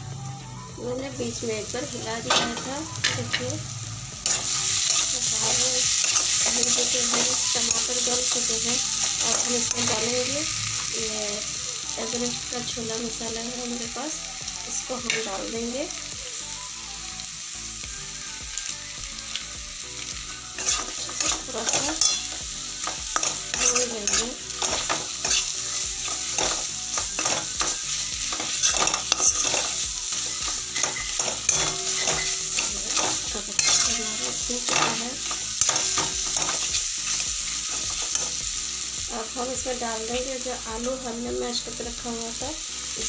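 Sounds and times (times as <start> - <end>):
spices sizzling in oil: 0.8 - 43.0
spatula scraping pan: 20.6 - 36.8.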